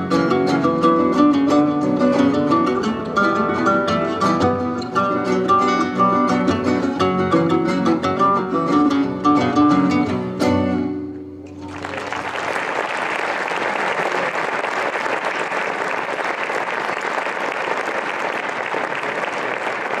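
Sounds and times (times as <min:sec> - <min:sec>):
acoustic guitars playing: 0:00.0 - 0:12.2
audience applause: 0:11.6 - 0:20.0.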